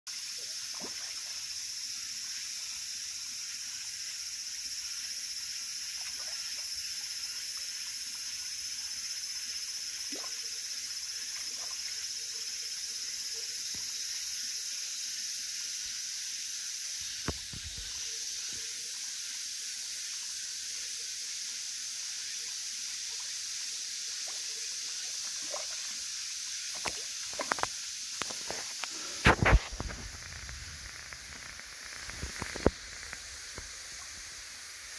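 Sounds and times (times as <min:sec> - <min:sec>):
fish splashing in a pond: 0:00.1 - 0:02.0, 0:05.5 - 0:12.4, 0:24.1 - 0:34.9
high-pitched hiss: 0:00.1 - 0:34.9.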